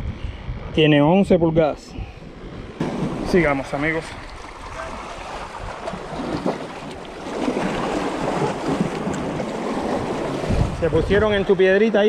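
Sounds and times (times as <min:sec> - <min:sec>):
wind buffeting microphone: 0:00.0 - 0:12.0
waves washing against rocks: 0:02.8 - 0:11.7.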